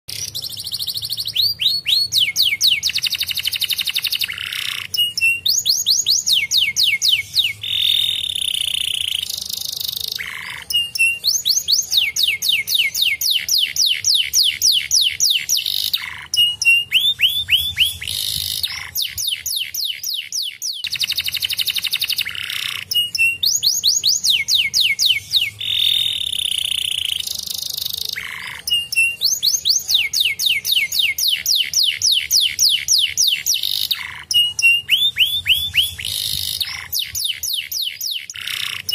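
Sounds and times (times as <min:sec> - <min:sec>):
canary singing trills: 0:00.1 - 0:38.9.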